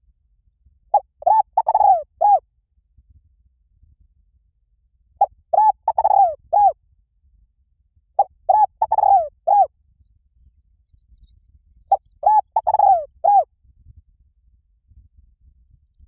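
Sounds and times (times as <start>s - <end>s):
dove cooing: 1.0s - 2.4s, 5.2s - 6.8s, 8.2s - 9.7s, 12.2s - 13.4s.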